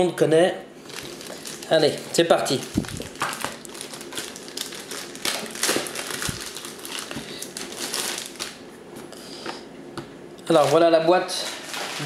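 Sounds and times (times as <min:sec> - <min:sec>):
packaging wrap crinkling: 0:00.8 - 0:08.7, 0:10.5 - 0:12.0.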